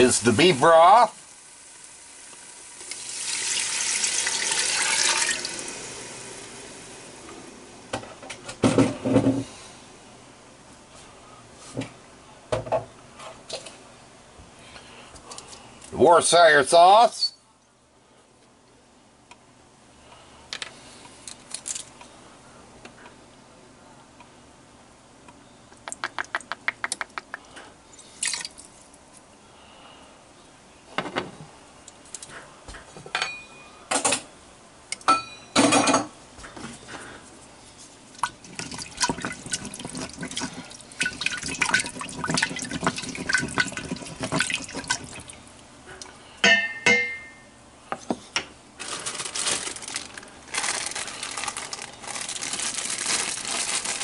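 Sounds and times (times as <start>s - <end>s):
liquid pouring and splashing: 2.3s - 6.6s, 28.2s - 28.6s, 38.2s - 45.4s.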